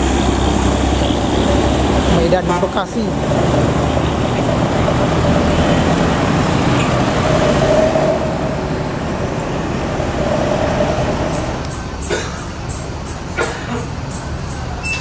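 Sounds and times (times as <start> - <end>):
diesel engines passing: 0.0 - 15.0
road traffic: 0.0 - 15.0.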